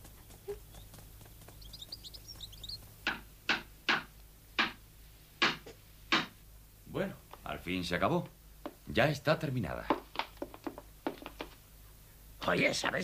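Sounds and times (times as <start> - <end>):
bird chirps: 0.0 - 3.1
hammer striking wood: 3.1 - 4.8, 5.4 - 6.4.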